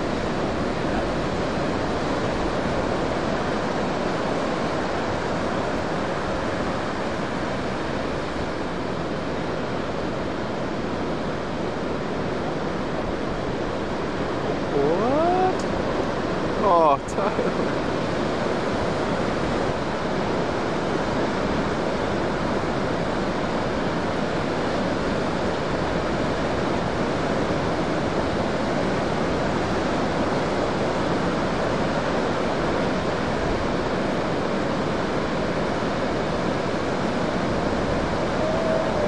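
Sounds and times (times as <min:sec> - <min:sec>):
heavy ocean surf breaking: 0:00.0 - 0:39.0.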